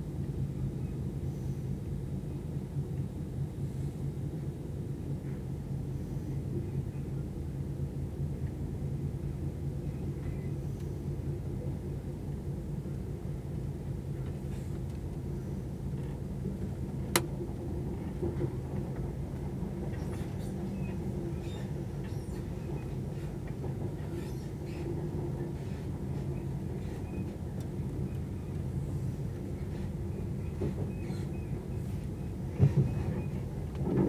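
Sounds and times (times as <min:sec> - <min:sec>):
train rumble inside carriage: 0:00.0 - 0:34.0.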